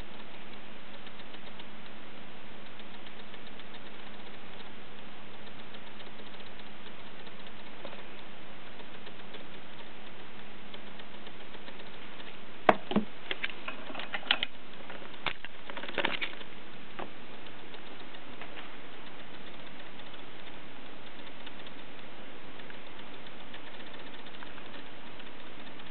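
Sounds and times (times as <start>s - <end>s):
steady hiss: 0.0s - 25.9s.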